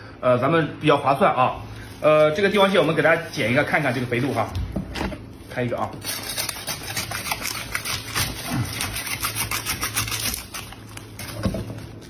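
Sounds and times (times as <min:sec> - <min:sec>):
knife sawing through crab shell: 0:06.0 - 0:11.4.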